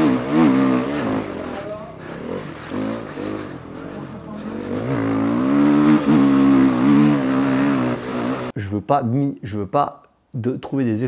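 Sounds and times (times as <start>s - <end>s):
motocross bike engine revving: 0.0s - 8.5s.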